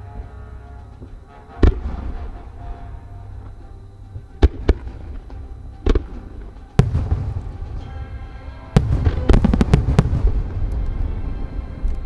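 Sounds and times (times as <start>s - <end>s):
low rumble: 0.0s - 12.0s
fireworks bangs: 1.0s - 2.9s, 4.2s - 11.6s.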